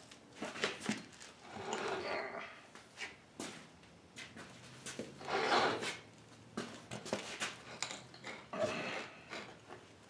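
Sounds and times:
footsteps on concrete floor: 2.7 - 7.6
shoe scraping concrete: 4.4 - 7.6.

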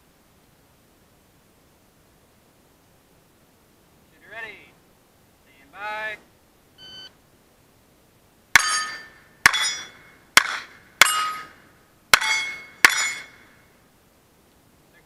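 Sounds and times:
pistol shots: 8.6 - 11.6
steel plate ringing: 8.6 - 13.6.

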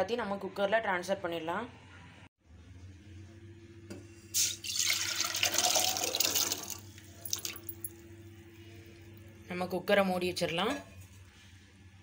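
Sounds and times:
water splashing into a pot: 4.4 - 7.7.

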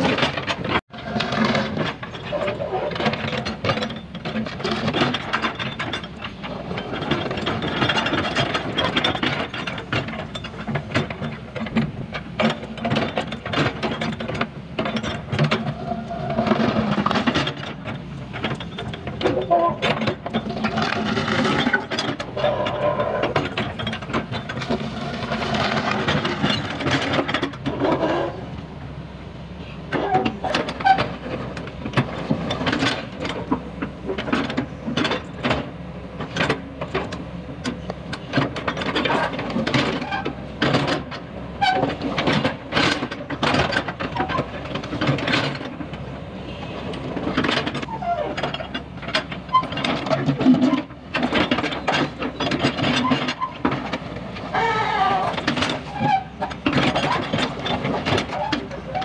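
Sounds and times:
excavator diesel engine running: 0.0 - 59.0
steel bucket scraping and clanking: 18.5 - 28.5.

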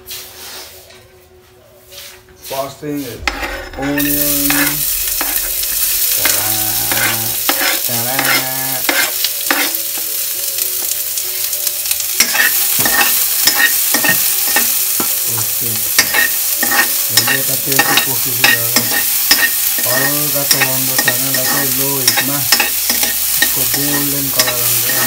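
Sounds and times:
onion sizzling in a wok: 2.5 - 25.0
metal spoon scraping pan: 3.1 - 10.0, 12.2 - 15.1, 15.9 - 25.0.

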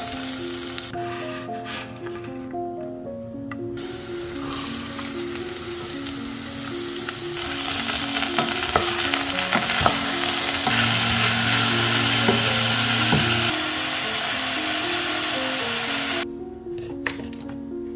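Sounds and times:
vegetables sizzling in a pot: 0.0 - 0.9, 3.8 - 16.2.

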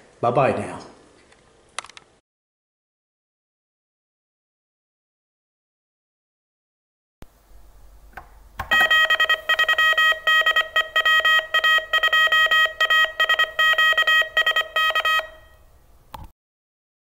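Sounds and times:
morse code beeps: 8.6 - 15.6.

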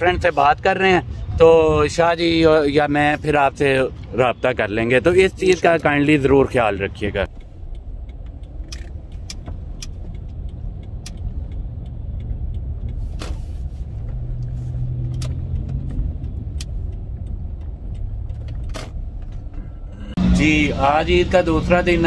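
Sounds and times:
car engine rumbling: 0.0 - 22.0
light clicks and rattles: 7.2 - 19.9.

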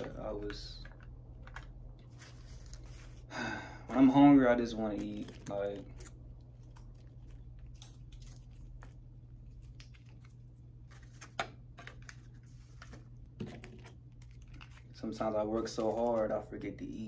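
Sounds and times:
plastic packets crinkling: 0.0 - 3.2, 13.7 - 16.4
steady low hum: 0.0 - 17.0.

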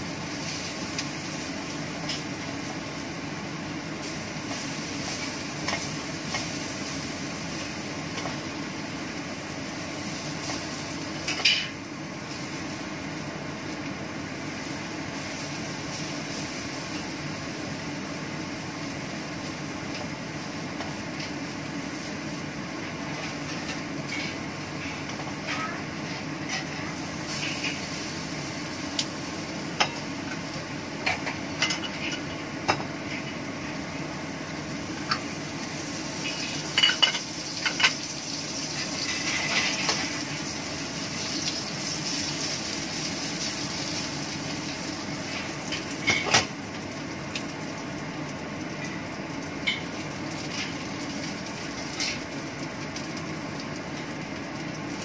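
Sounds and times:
low background hum: 0.0 - 55.0
utensil clinking and scraping in pan: 31.0 - 32.4, 36.2 - 38.0, 38.7 - 40.2, 51.9 - 52.3.

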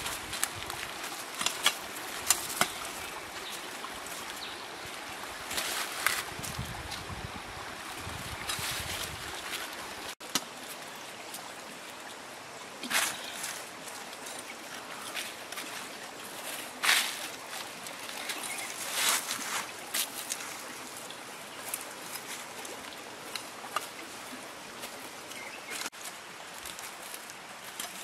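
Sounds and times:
plant stems snapping and rustling: 0.0 - 3.0
stream running over rocks: 0.0 - 28.0.

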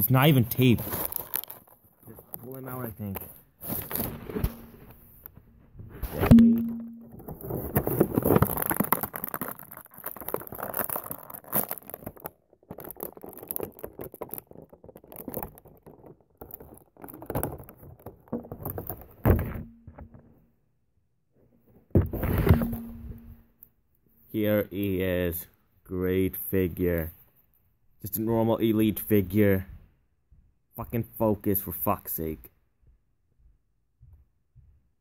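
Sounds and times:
toy packaging rustling and scraping: 0.1 - 6.4, 7.1 - 20.3, 21.7 - 23.4.

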